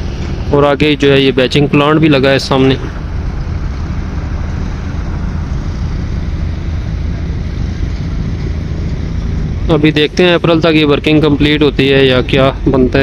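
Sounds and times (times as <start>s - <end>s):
road noise: 0.0s - 13.0s
vehicle engine hum: 0.0s - 13.0s.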